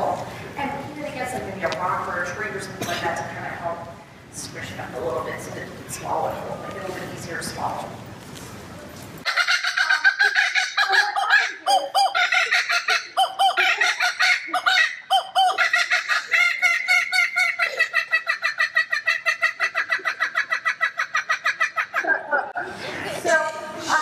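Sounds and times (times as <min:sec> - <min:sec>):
kookaburra calling: 0:09.2 - 0:22.3.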